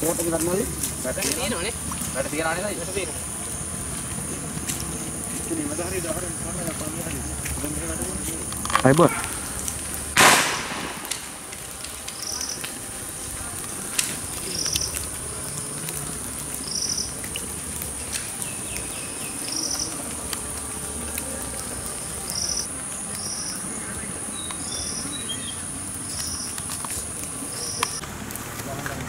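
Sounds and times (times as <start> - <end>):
sharp crack: 8.6 - 18.9.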